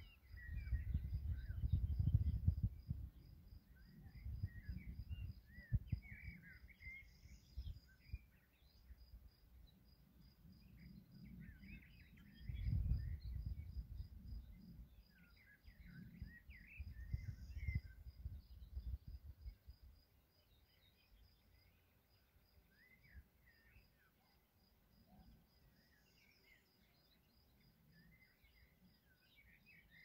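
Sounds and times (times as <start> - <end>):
songbirds singing: 0.0 - 30.0
wind buffeting microphone: 0.2 - 6.4, 12.3 - 14.8, 16.0 - 19.8.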